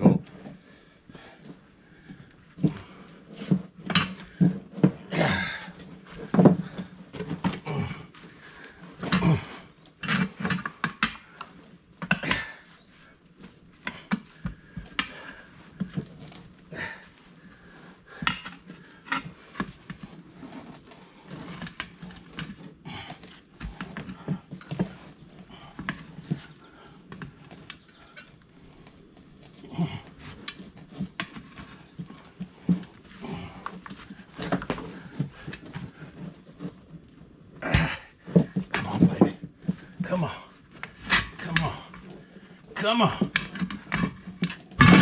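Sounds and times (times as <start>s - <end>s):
tire irons clanking on metal rim: 2.6s - 17.0s, 37.6s - 45.0s.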